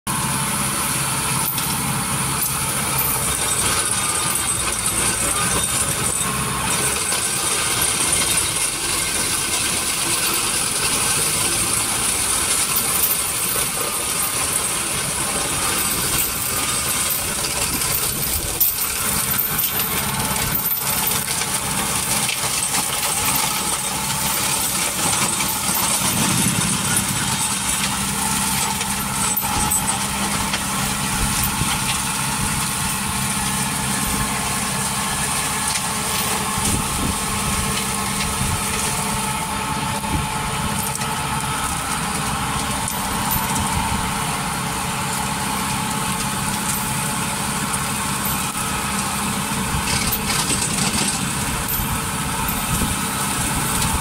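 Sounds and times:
forestry mulcher rotor: 0.1s - 54.0s
tractor engine: 0.1s - 54.0s
wood crackling and clattering: 15.8s - 30.8s, 49.7s - 52.9s.

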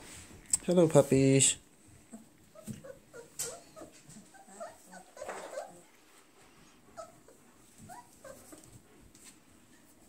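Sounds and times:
puppies whimpering: 2.1s - 6.0s, 6.6s - 8.8s.

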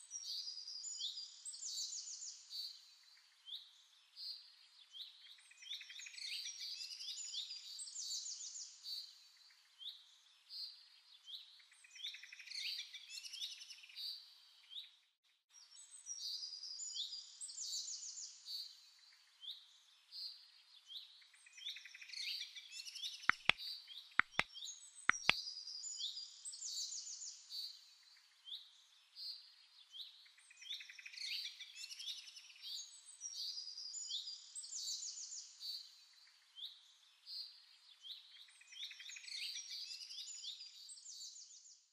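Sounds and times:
small birds chirping: 15.6s - 41.9s
sharp clicks: 23.3s - 23.6s, 24.2s - 24.4s, 25.1s - 25.4s.

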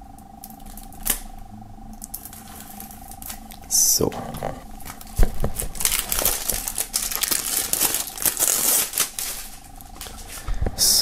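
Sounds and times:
cellophane crackling and tearing: 0.4s - 1.3s, 2.0s - 10.4s.

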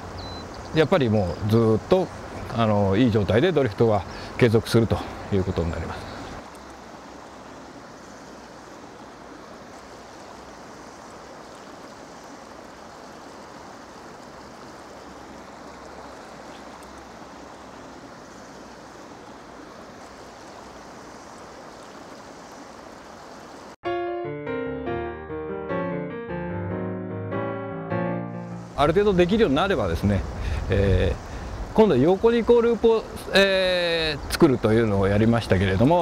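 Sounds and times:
stream flowing over rocks: 0.0s - 23.8s.

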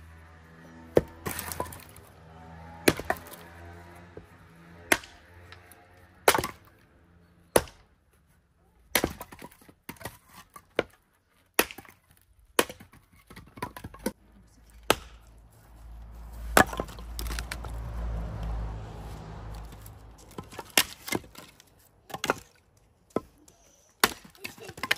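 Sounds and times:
axe splitting wood: 0.9s - 2.1s, 2.7s - 6.8s, 7.4s - 8.0s, 8.8s - 15.4s, 16.5s - 17.8s, 19.6s - 23.4s, 24.0s - 24.9s.

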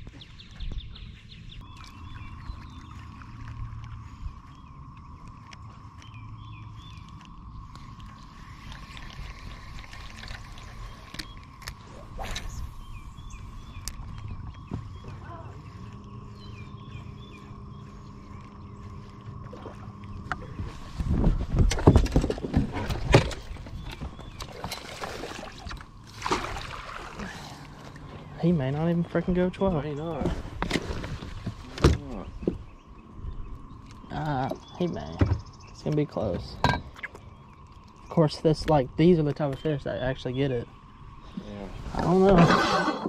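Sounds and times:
birds chirping: 0.0s - 43.0s
wind: 0.0s - 43.0s
water lapping: 1.6s - 43.0s
electric motor humming: 2.8s - 21.6s
knocks and thumps on boat deck: 20.4s - 24.8s, 35.0s - 35.5s.

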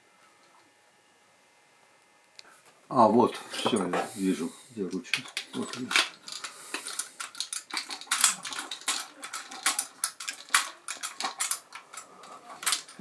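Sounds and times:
metallic clicks and clinks: 5.1s - 13.0s.

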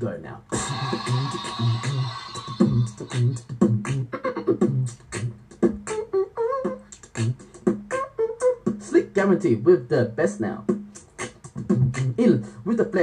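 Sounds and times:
beatboxing vocal percussion: 0.0s - 13.0s.

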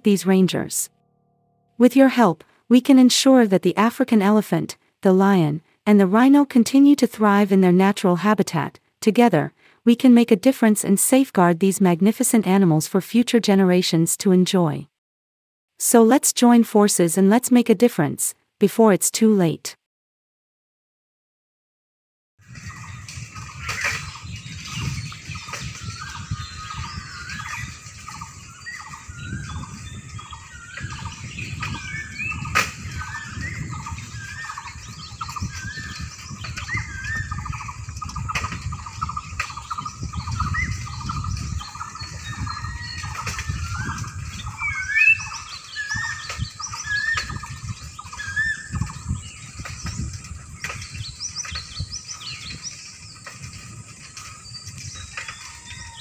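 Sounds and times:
birds chirping: 22.4s - 56.0s.

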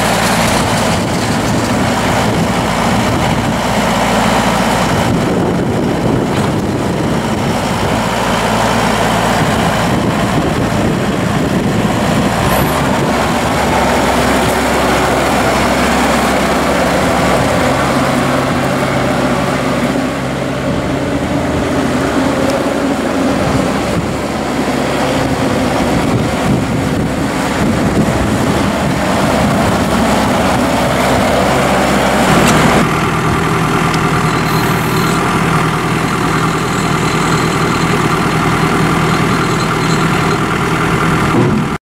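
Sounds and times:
tractor diesel engine running: 0.0s - 41.8s.

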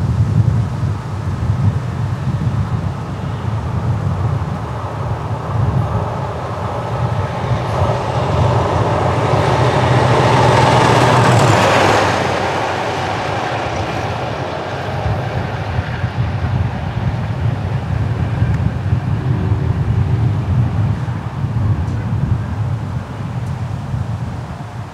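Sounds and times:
diesel locomotive passing: 0.9s - 24.9s
high whine dropping in pitch: 3.6s - 22.0s.

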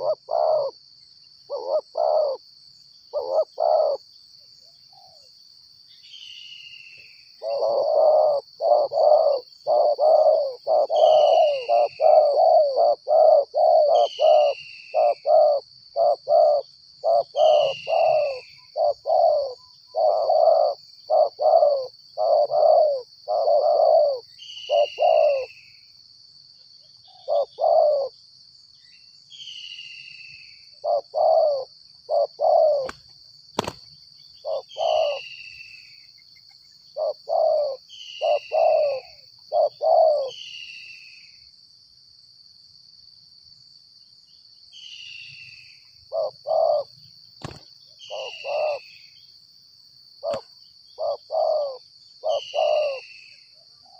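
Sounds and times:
doves cooing: 0.0s - 0.8s, 1.5s - 2.4s, 3.1s - 4.0s, 7.4s - 25.6s, 27.1s - 28.1s, 30.8s - 33.8s, 34.4s - 35.4s, 37.0s - 40.4s, 46.1s - 49.0s, 50.2s - 53.2s.

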